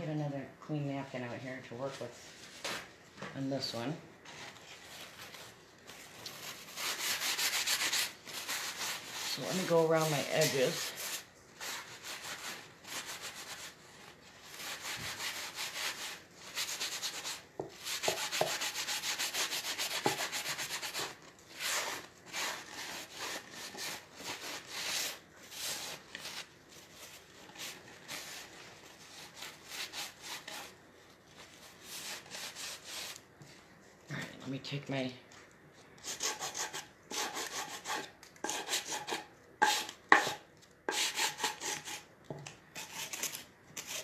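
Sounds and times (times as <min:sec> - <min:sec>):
paper napkin rubbing on wood: 0:06.4 - 0:13.8.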